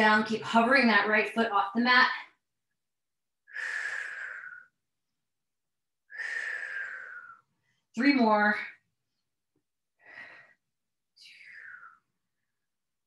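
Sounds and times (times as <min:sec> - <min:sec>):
woman breathing effortfully: 0:03.5 - 0:04.8, 0:06.1 - 0:07.8, 0:10.0 - 0:12.0.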